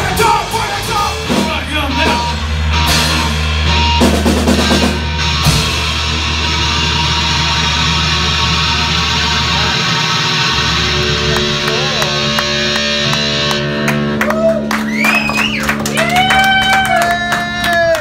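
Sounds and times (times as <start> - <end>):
drum and cymbal hits: 0.0 - 13.5
punk rock band playing: 0.0 - 18.0.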